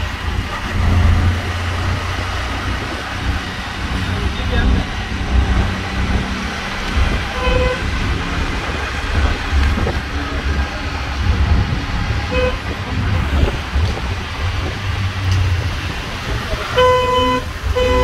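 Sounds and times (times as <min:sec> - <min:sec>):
auto-rickshaw engine running: 0:00.0 - 0:18.0
road and wind noise: 0:00.0 - 0:18.0
vehicle horn toots: 0:07.3 - 0:08.1, 0:12.3 - 0:12.8, 0:16.7 - 0:18.0.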